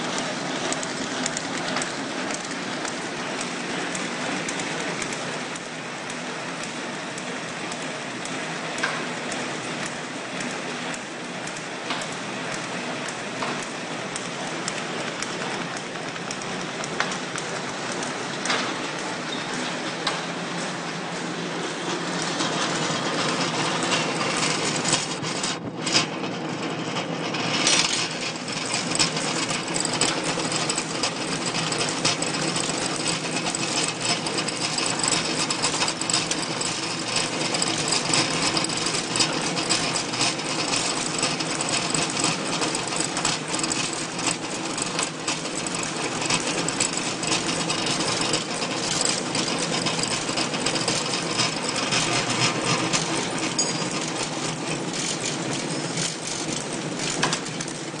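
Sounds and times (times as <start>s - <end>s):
packaging machine clattering: 27.6s - 58.0s.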